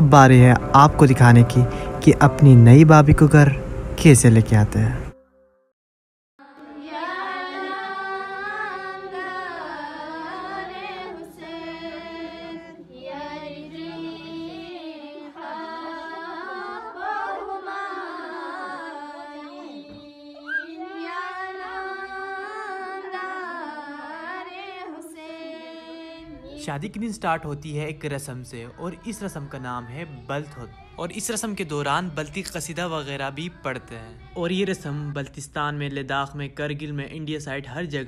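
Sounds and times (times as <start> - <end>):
women singing devotional chant: 6.4 - 35.4.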